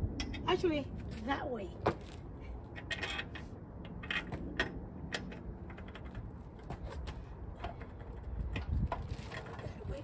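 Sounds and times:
clicks and rattles of parts: 0:02.0 - 0:10.0.

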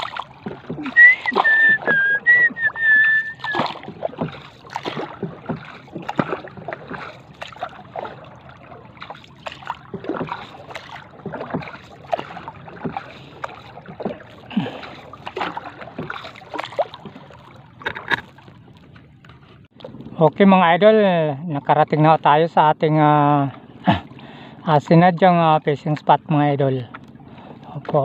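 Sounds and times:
paddle splashing in water: 0:00.0 - 0:20.2.

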